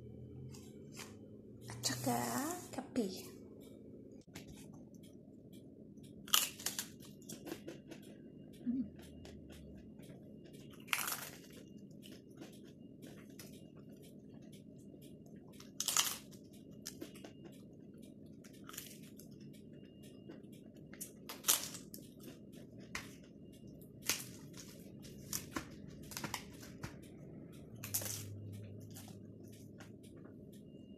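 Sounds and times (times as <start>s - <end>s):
low background hum: 0.0s - 30.9s
crunching crispy flatbread: 10.8s - 11.6s, 15.8s - 16.3s.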